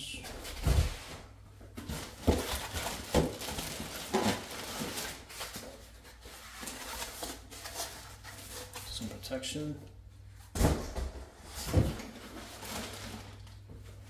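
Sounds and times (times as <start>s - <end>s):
plastic bag rustling: 0.5s - 9.2s, 11.6s - 14.0s.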